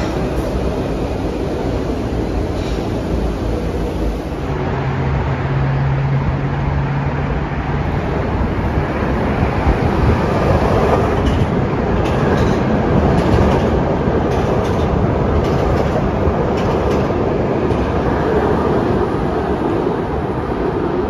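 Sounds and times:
train wheels clacking on rails: 0:00.0 - 0:03.3, 0:09.4 - 0:18.9
train rumbling past: 0:00.0 - 0:21.0.

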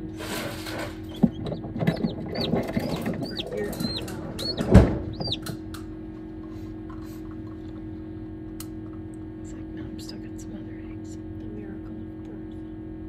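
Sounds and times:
rustling among eggs: 0:00.2 - 0:05.6
chick peeping: 0:01.0 - 0:05.6.

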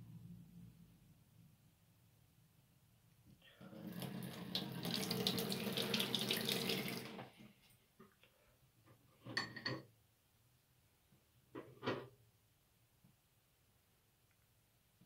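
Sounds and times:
tap water running into sink: 0:03.7 - 0:07.3.

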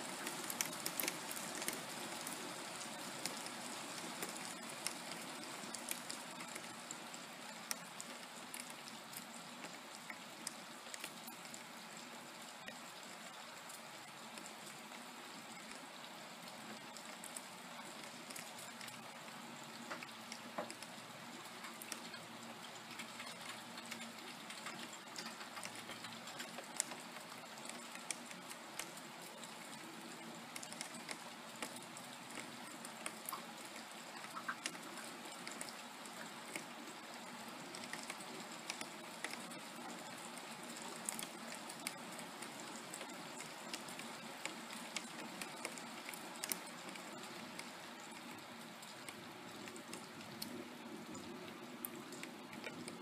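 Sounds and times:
raindrops tapping close by: 0:00.0 - 0:53.0
steady rain: 0:00.0 - 0:53.0.

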